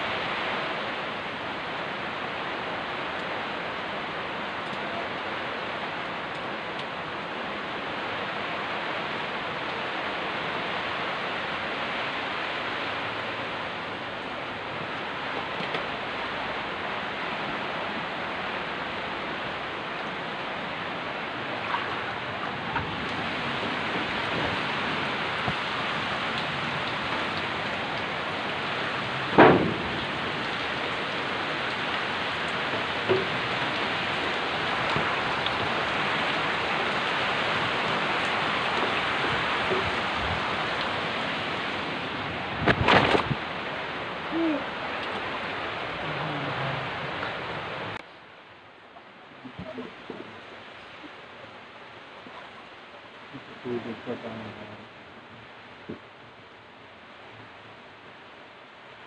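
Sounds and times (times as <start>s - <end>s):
heavy rain pouring: 0.0s - 59.0s
knock: 29.4s - 30.0s.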